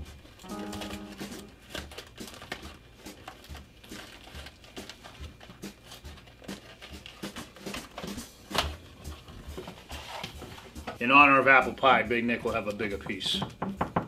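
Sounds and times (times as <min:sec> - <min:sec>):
cardboard cracking: 0:00.4 - 0:10.6.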